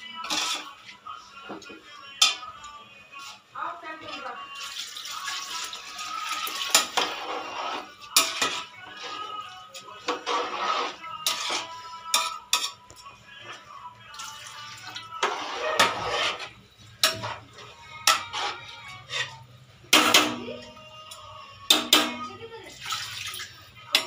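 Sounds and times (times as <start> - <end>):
metal spoon clinking and scraping pot: 0.0 - 0.9, 1.7 - 2.7, 6.0 - 22.3.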